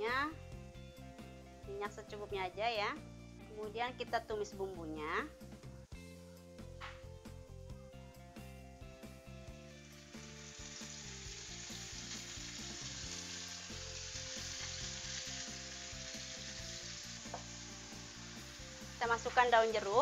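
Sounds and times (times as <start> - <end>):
spice paste sizzling in wok: 4.4 - 20.0.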